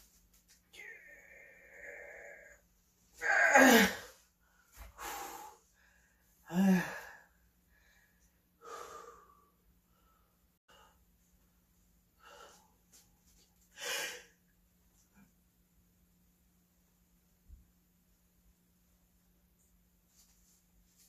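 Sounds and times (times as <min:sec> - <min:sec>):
man grunting and exhaling: 0:03.2 - 0:04.2, 0:06.4 - 0:07.3.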